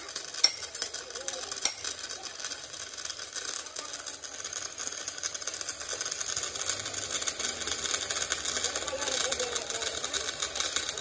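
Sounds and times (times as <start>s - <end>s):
welding arc crackling: 0.0s - 11.0s.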